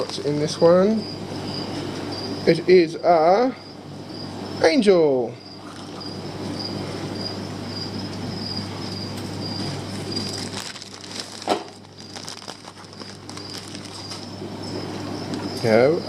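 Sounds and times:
plastic bags crinkling: 9.9 - 14.4.

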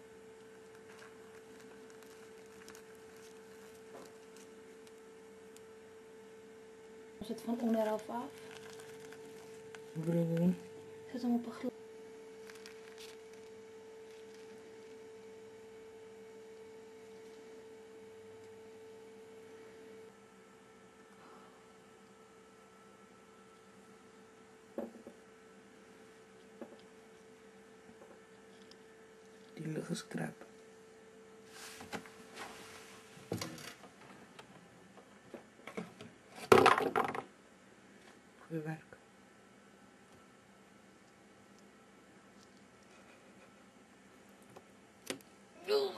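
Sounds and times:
faint electrical hum: 0.0 - 45.9.

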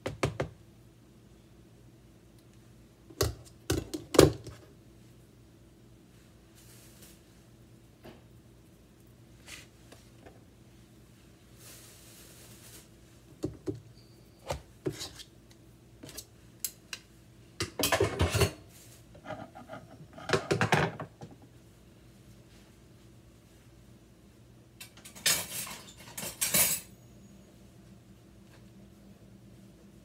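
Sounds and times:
dishes and utensils knocking: 17.6 - 18.6, 19.4 - 21.3
dishes clattering: 17.6 - 18.7, 19.3 - 21.3, 24.9 - 26.9.

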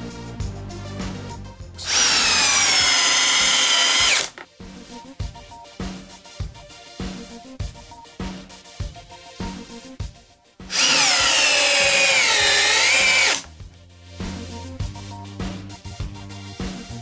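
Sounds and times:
background music with beat: 0.0 - 17.0
cordless drill motor whine: 1.8 - 4.4, 10.7 - 13.5.

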